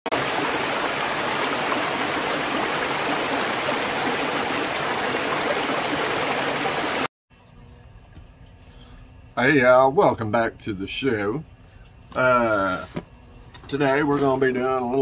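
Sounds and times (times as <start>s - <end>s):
stream water rushing over rocks: 0.1s - 7.1s.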